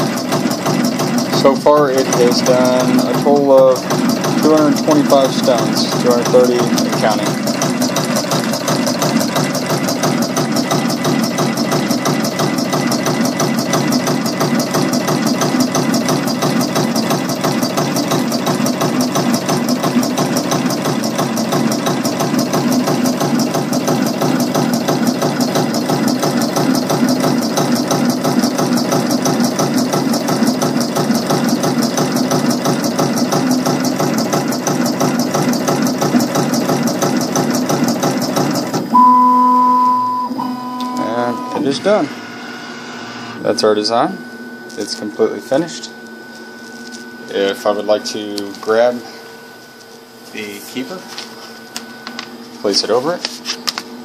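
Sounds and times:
machine mechanical clatter: 0:00.0 - 0:38.9.

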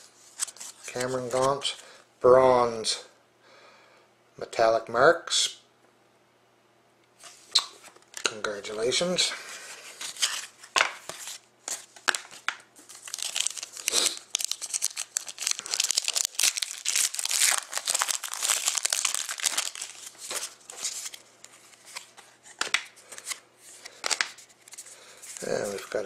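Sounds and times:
foil wrapper tearing and crinkling: 0:11.1 - 0:21.2.

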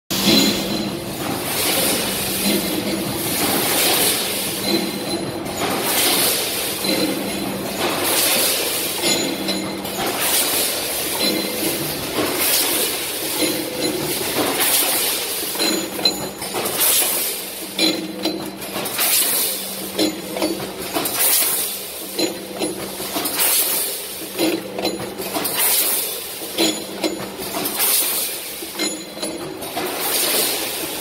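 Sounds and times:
machine clicks and clinks: 0:00.1 - 0:31.0
packing machine hissing: 0:00.2 - 0:05.0, 0:10.0 - 0:15.6, 0:29.6 - 0:31.0.

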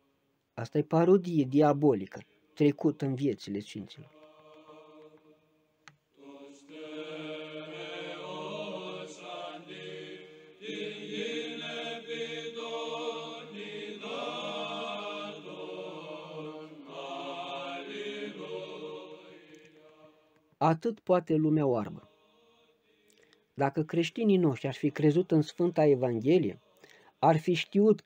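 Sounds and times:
voices singing church chant: 0:03.9 - 0:20.5, 0:21.8 - 0:23.4.

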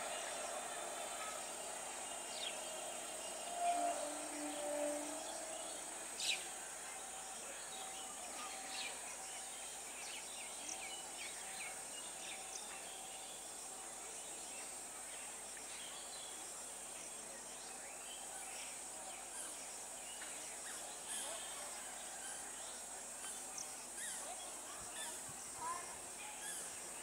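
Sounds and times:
high insect drone: 0:00.0 - 0:27.0.

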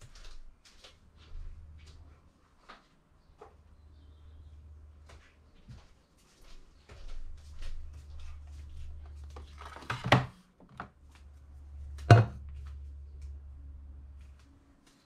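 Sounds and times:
metal milk jug clunk: 0:12.1 - 0:12.4.

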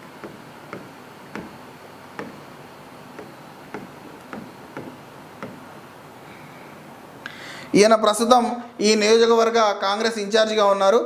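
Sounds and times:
faint steady hiss: 0:00.0 - 0:10.9
stylus pen tapping on glass: 0:00.1 - 0:02.5, 0:03.1 - 0:05.7.

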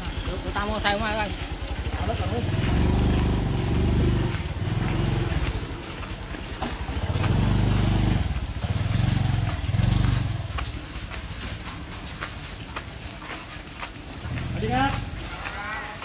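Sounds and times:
motorcycle engine running: 0:00.0 - 0:15.8.

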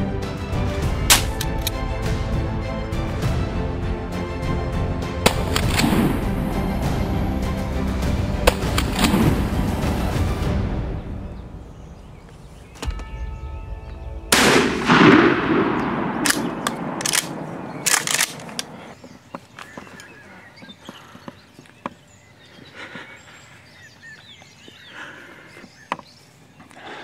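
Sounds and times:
shotgun blast with echo: 0:14.3 - 0:18.2.

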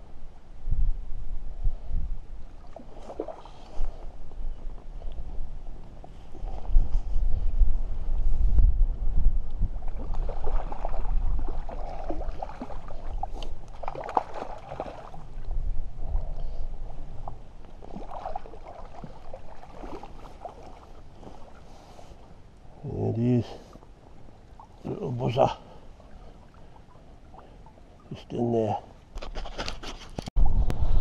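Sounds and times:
wind rumbling on microphone: 0:00.0 - 0:25.4, 0:29.1 - 0:31.0
fish splashing in water: 0:09.8 - 0:15.3, 0:17.8 - 0:21.6.

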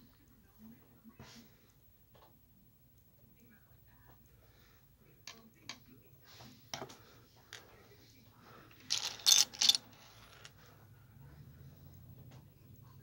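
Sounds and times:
plastic bricks clicking: 0:08.9 - 0:09.8.

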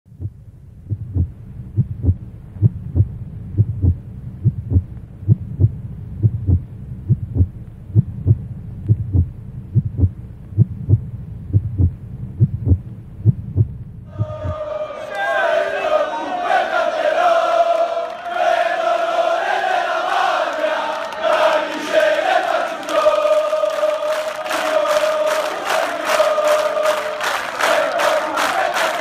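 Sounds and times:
heartbeat thumps: 0:00.1 - 0:14.7
steady low hum: 0:00.1 - 0:15.0.

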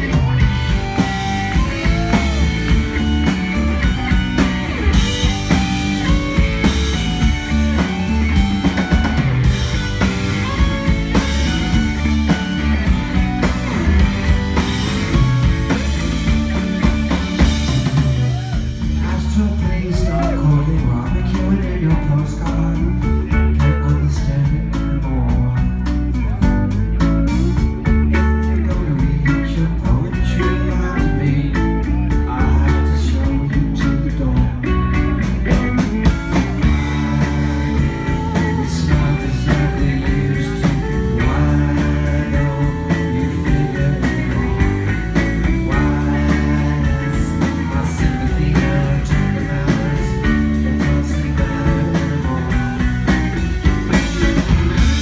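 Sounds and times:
drum and cymbal beat: 0:00.0 - 0:20.2, 0:35.2 - 0:55.0
live rock band playing: 0:00.0 - 0:55.0.

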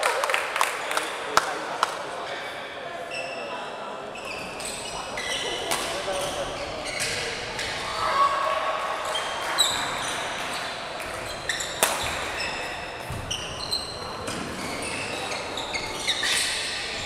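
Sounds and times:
sneakers squeaking on court floor: 0:04.1 - 0:07.8, 0:09.0 - 0:17.0
racket striking shuttlecock: 0:11.8 - 0:12.2.

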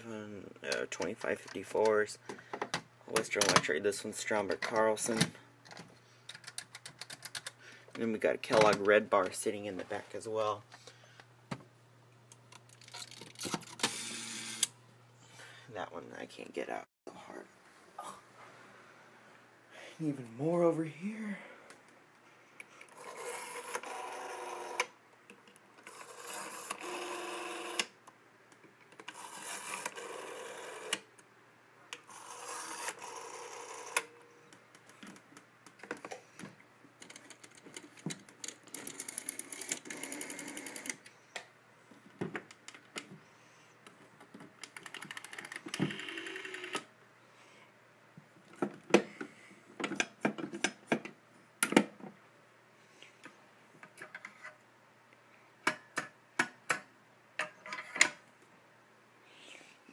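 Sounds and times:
rotary telephone dial whirring: 0:12.8 - 0:14.7, 0:22.9 - 0:24.9, 0:25.8 - 0:27.9, 0:29.1 - 0:31.1, 0:32.0 - 0:34.2, 0:38.4 - 0:41.0, 0:44.8 - 0:46.9.

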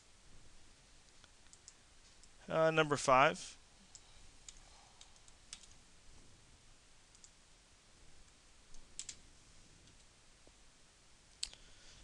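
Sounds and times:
faint computer clicks: 0:01.1 - 0:02.4.

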